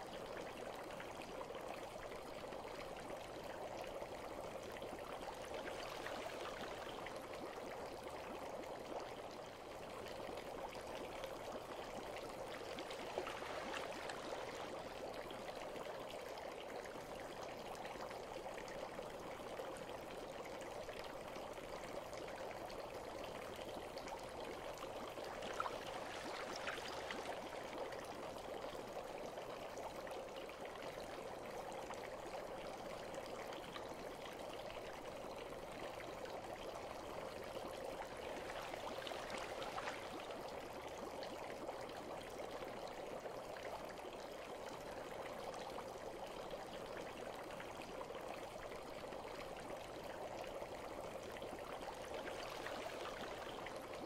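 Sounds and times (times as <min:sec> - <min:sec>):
bath water trickling and bubbling: 0:00.0 - 0:54.0
water plinks: 0:12.3 - 0:15.1.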